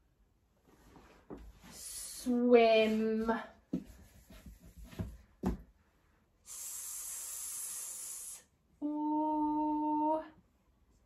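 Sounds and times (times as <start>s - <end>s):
woman's voice hissing an s: 6.5s - 10.2s.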